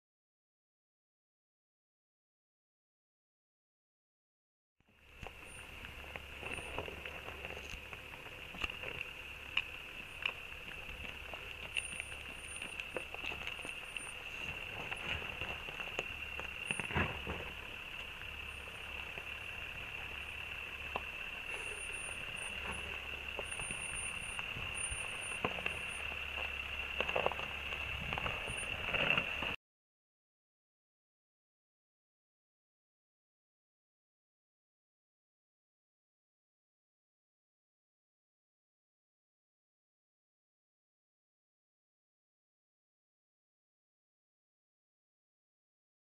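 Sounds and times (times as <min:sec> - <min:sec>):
gravel crunching under tyres: 0:04.9 - 0:29.6
high-pitched whine: 0:04.9 - 0:29.6
low rumble: 0:05.0 - 0:29.6.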